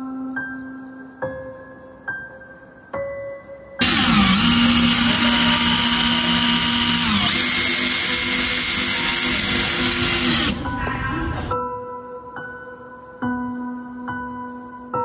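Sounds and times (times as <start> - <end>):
impact driver motor whine: 3.8 - 11.0.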